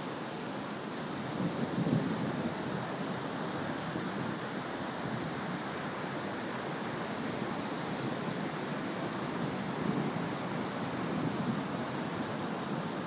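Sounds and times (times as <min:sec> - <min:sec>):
wind on microphone: 0:01.2 - 0:05.6.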